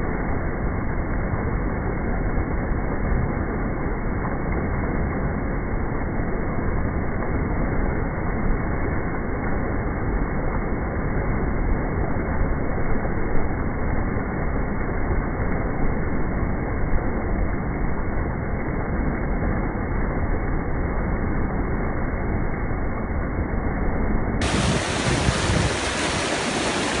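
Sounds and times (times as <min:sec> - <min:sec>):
waterfall rushing: 0:24.4 - 0:27.0
wind buffeting microphone: 0:24.4 - 0:27.0.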